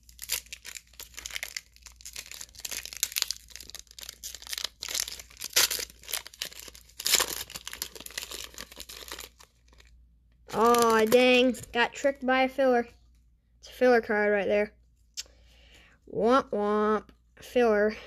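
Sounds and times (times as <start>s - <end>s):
foil wrapper crinkling and tearing: 0.0s - 11.7s.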